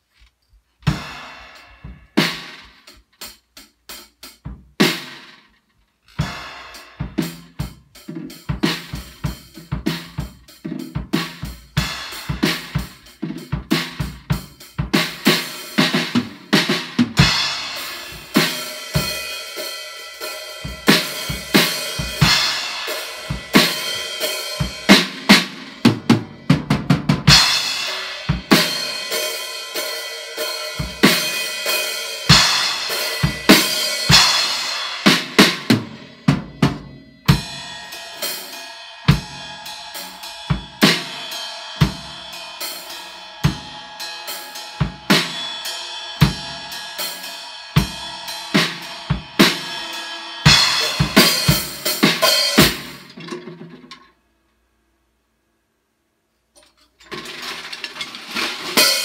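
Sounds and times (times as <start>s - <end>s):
drum kit beat: 0.8s - 54.0s, 58.2s - 59.0s
crashing cymbals: 27.3s - 36.3s, 37.3s - 53.0s.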